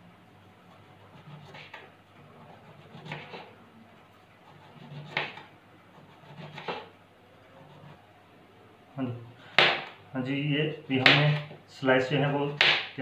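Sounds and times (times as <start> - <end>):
knife slicing eggplant on board: 1.2 - 1.9, 2.6 - 3.5, 4.8 - 5.5, 6.2 - 6.9.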